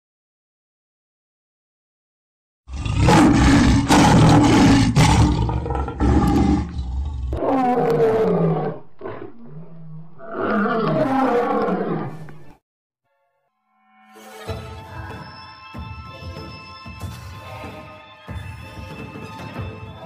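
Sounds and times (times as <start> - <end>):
lion roaring: 2.7 - 12.6.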